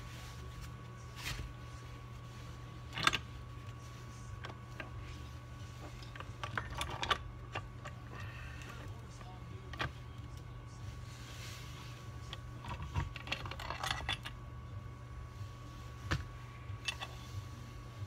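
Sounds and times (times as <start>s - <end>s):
low hum: 0.0s - 18.0s
metal parts clicking and knocking: 6.0s - 8.2s, 12.6s - 14.4s.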